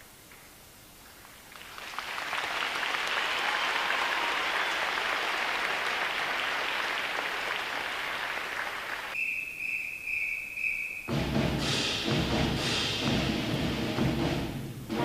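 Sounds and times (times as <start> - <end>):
audience applause: 1.5 - 9.2
pulsing high whistle tone: 9.2 - 11.4
music: 11.1 - 15.0.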